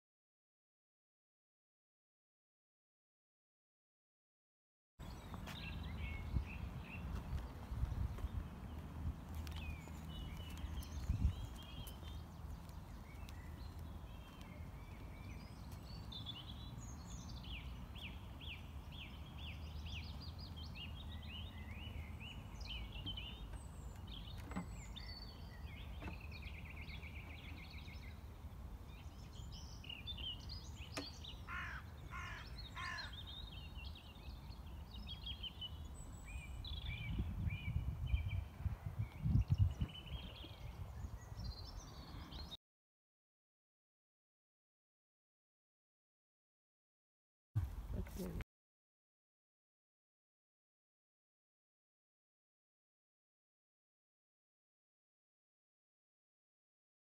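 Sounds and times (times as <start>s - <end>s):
harsh low bird calls: 5.0s - 42.6s
songbirds singing: 5.0s - 42.6s
wind rumble on microphone: 5.1s - 14.2s, 34.9s - 42.5s.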